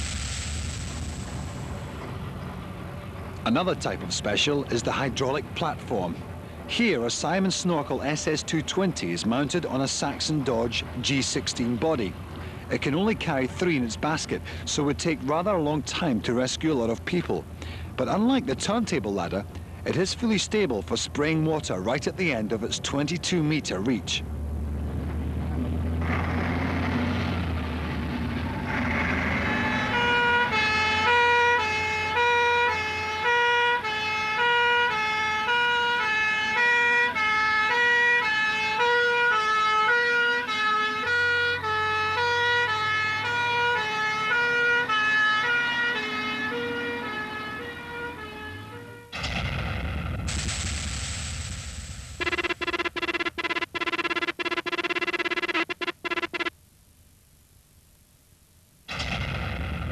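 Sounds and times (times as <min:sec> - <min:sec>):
truck engine rumble: 0:00.0 - 0:56.6
fire engine two-tone siren: 0:25.9 - 0:49.2, 0:52.2 - 0:56.5
electronic music: 0:52.1 - 0:56.5.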